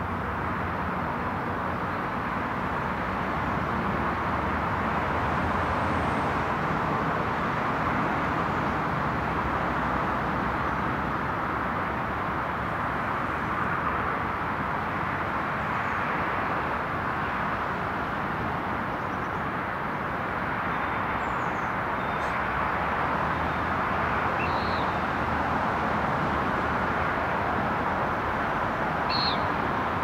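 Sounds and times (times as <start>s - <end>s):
faint bird chirps: 24.4s - 25.0s, 29.1s - 29.6s.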